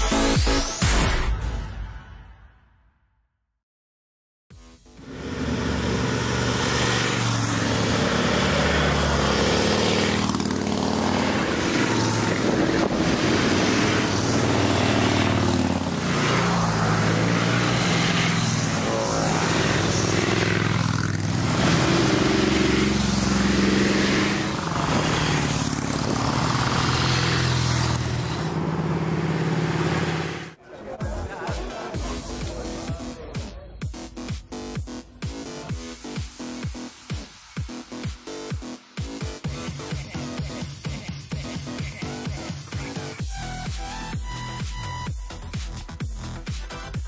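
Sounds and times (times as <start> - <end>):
motorcycles passing: 5.1 - 30.6.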